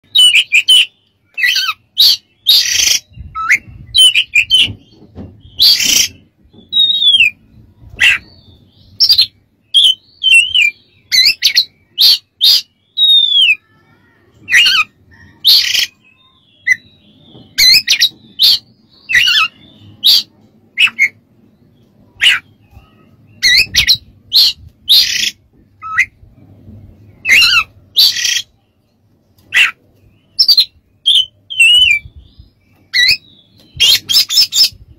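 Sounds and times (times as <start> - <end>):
bird singing whistled phrases: 6.7 - 7.4, 9.0 - 13.6, 30.4 - 32.2.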